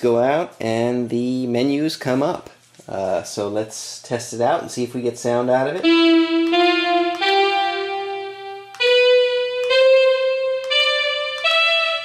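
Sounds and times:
synthesizer playing held notes: 5.8s - 12.0s.

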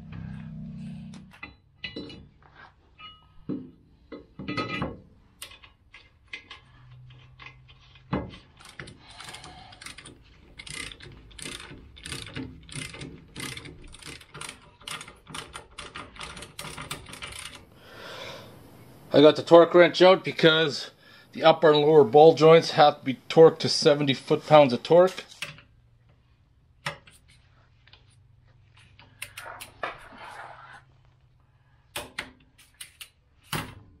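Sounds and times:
metal tools clinking: 3.0s - 3.4s, 4.4s - 17.6s.

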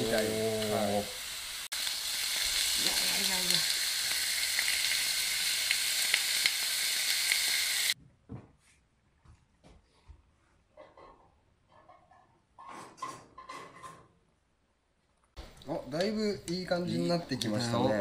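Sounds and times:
meat sizzling in a pan: 0.0s - 8.0s.

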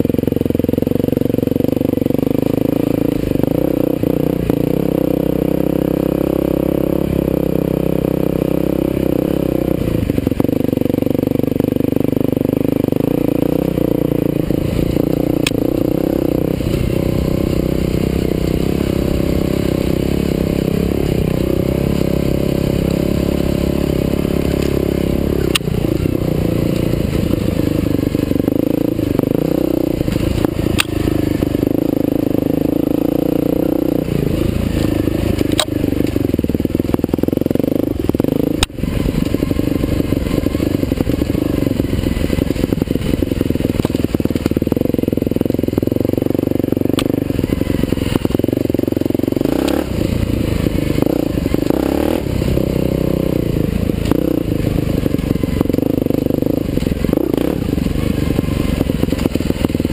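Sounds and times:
dirt bike engine running: 0.0s - 59.9s
sharp clicks: 30.7s - 31.0s, 35.5s - 35.8s.

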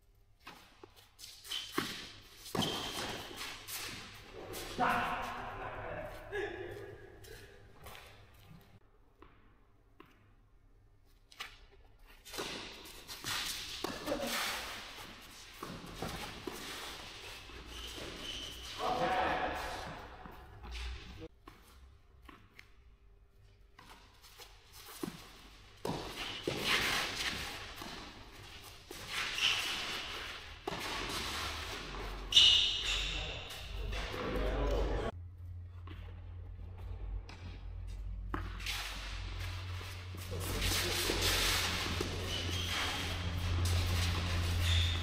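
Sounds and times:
racket hitting tennis ball: 30.0s - 32.1s.

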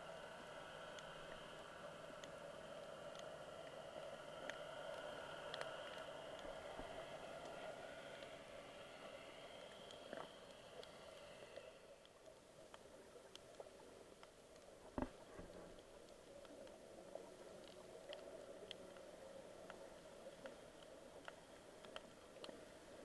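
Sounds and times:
underwater hiss: 0.0s - 12.0s
faint underwater clicks: 0.2s - 23.0s.

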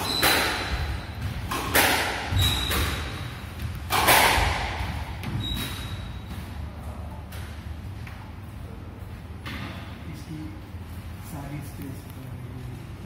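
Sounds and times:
squash ball thwacks: 0.0s - 5.3s.

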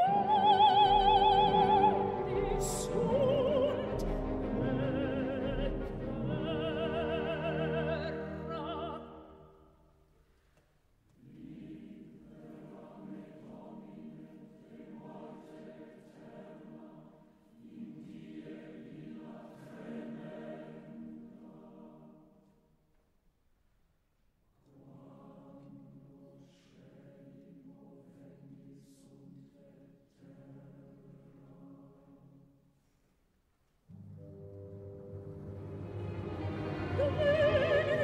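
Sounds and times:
singer with wide vibrato: 0.0s - 9.4s, 36.7s - 38.0s
choral singing: 0.0s - 9.7s, 11.1s - 22.6s, 24.6s - 32.6s, 33.9s - 38.0s.

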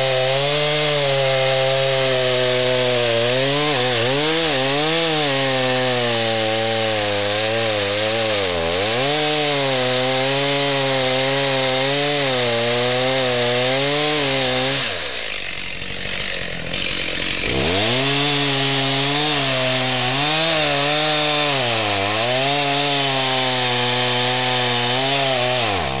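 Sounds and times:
chainsaw cutting wood: 0.0s - 26.0s.

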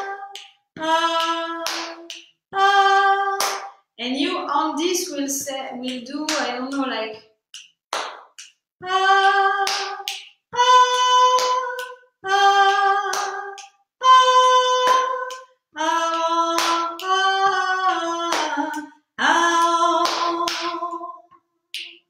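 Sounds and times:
hand percussion: 0.0s - 2.4s, 5.8s - 12.0s
woman singing vowel notes: 0.0s - 7.2s, 8.8s - 21.3s.

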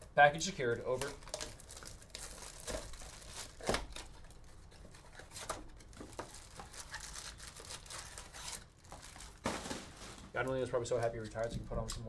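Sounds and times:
card packs rustling and crinkling: 0.4s - 11.8s.

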